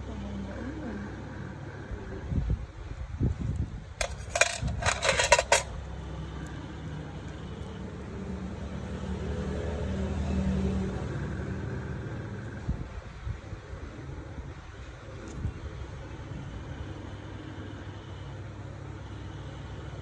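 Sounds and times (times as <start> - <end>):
metal tools clinking together: 4.0 - 5.7.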